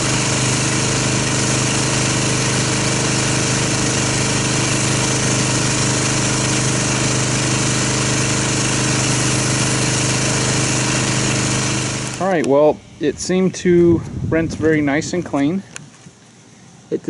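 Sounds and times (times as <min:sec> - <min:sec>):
water spray hissing on car: 0:00.0 - 0:12.2
pressure washer motor hum: 0:00.0 - 0:13.7.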